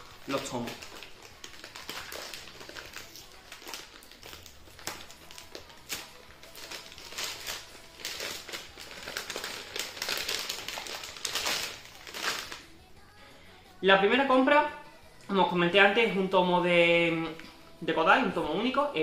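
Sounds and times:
paper wrapping crinkling and tearing: 0.0 - 12.7.

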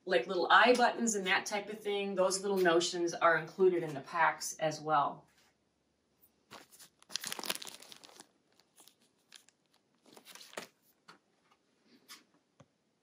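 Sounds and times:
plastic packaging crinkling: 6.5 - 11.0.

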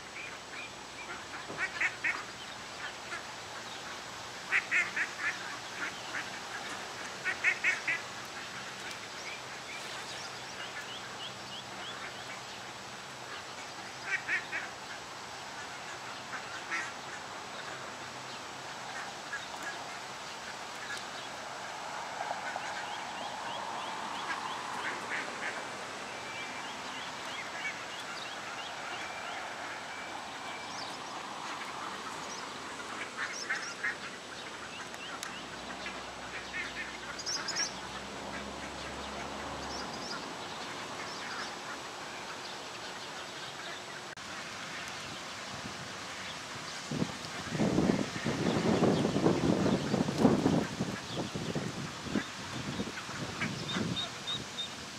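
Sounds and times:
ducks quacking: 4.5 - 8.8, 13.6 - 17.8, 18.9 - 42.5
ducklings peeping: 22.5 - 44.0, 47.0 - 54.8.

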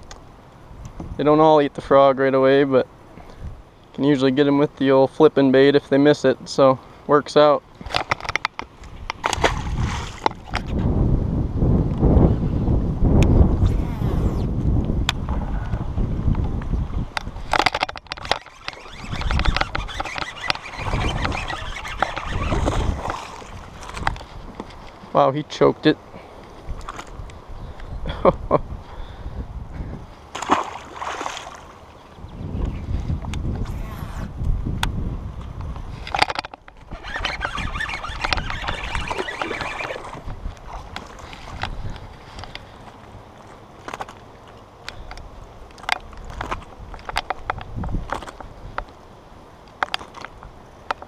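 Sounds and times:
wind rumble on microphone: 3.2 - 3.7, 8.8 - 25.1, 26.6 - 30.3, 32.0 - 42.9, 44.9 - 48.9
fish thrashing and splashing: 9.2 - 10.5, 17.6 - 24.1, 30.4 - 31.8, 36.9 - 42.0
fishing reel clicking: 17.5 - 23.2, 36.1 - 40.2
fish splashing in water: 30.4 - 31.8.

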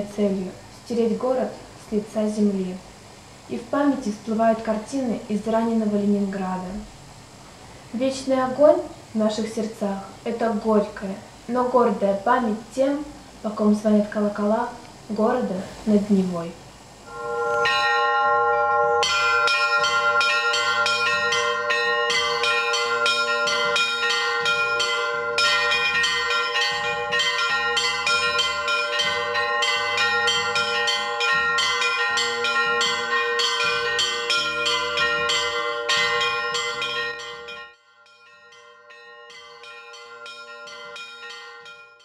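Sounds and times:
church bells ringing: 17.1 - 42.0.

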